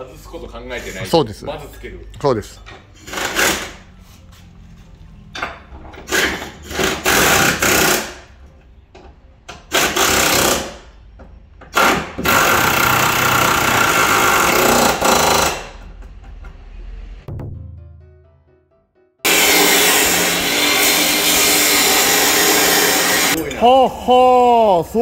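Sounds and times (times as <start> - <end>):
pneumatic air tool running: 3.0 - 3.8, 6.0 - 8.2, 9.7 - 10.8, 11.7 - 15.8, 19.3 - 23.4.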